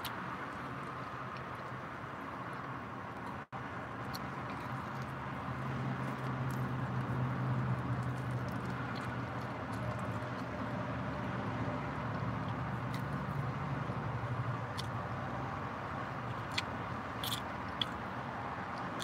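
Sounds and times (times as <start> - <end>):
person chewing: 4.0 - 10.6, 12.4 - 13.5, 14.7 - 15.0, 16.2 - 18.1.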